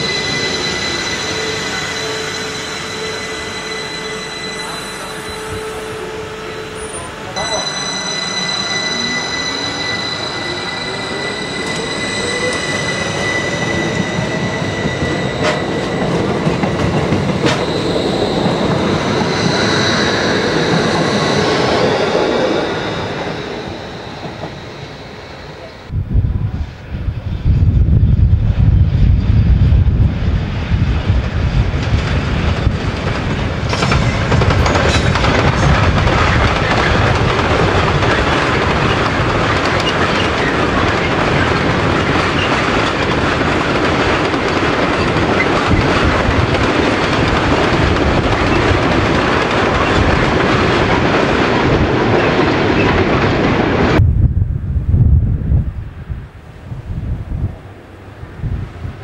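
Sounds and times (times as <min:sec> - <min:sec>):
train passing: 0:00.0 - 0:59.0.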